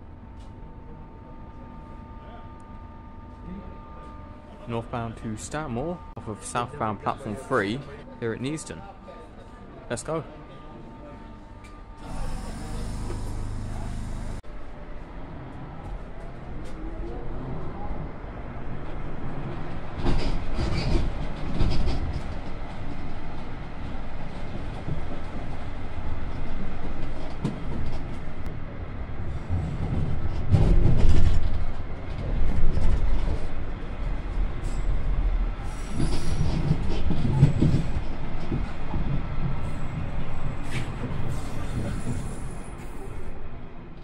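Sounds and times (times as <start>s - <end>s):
train rumble inside carriage: 11.4s - 44.0s
high wheel squeal: 12.0s - 14.4s.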